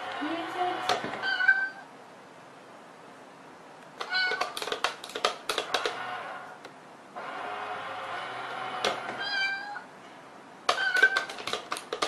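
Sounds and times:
cat meowing: 1.2s - 1.9s, 4.0s - 4.6s, 9.2s - 9.9s, 10.7s - 11.4s
toy coin box clicking: 4.0s - 6.0s, 10.7s - 12.0s.

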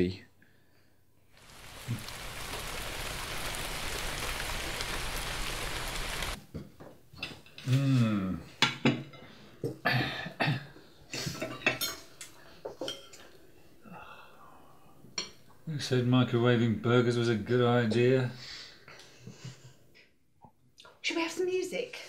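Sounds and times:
steady hiss: 1.4s - 6.4s
plates and cutlery clinking: 11.2s - 13.4s.

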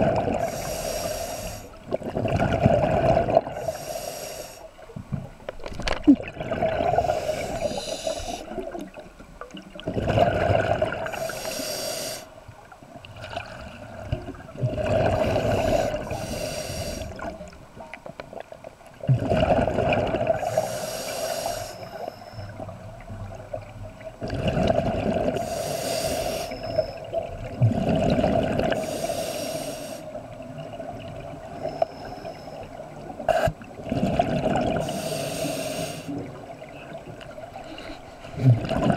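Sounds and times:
regulator hiss on inhale: 0.4s - 1.8s, 3.6s - 4.7s, 7.0s - 8.6s, 11.0s - 12.4s, 15.3s - 17.3s, 20.4s - 22.5s, 25.4s - 27.0s, 28.7s - 30.2s, 31.6s - 33.6s, 34.8s - 36.2s
bubbling on exhale: 5.9s - 8.7s, 9.8s - 12.3s, 14.6s - 17.3s, 19.1s - 21.5s, 38.3s - 38.9s.

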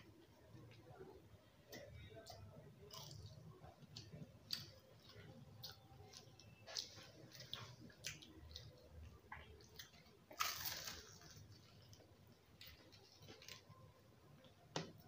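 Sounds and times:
chewing and mouth clicks: 4.0s - 13.8s.

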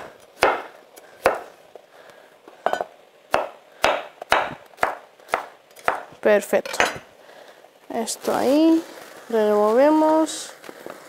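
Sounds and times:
knife chopping on wooden board: 0.0s - 1.5s, 3.3s - 6.1s.

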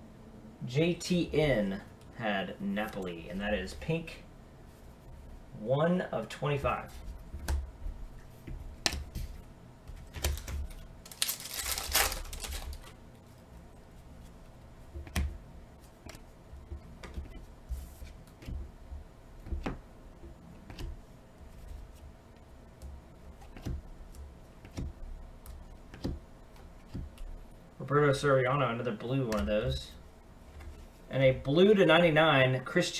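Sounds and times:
plastic wrapping crinkling: 10.0s - 13.0s
cards clicking and snapping: 10.1s - 12.9s, 23.4s - 23.8s.

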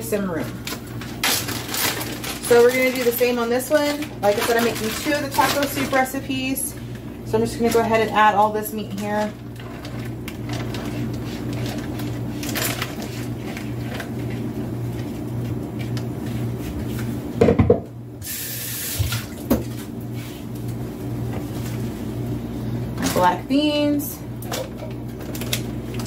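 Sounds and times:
steady low hum: 0.0s - 26.0s
plastic bag rustling: 0.3s - 17.2s, 25.0s - 26.0s.

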